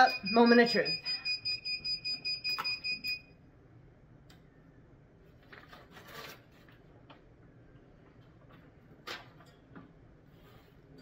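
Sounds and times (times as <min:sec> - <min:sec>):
timer alarm beeping: 0:00.0 - 0:03.4
paper rustling: 0:05.3 - 0:06.8.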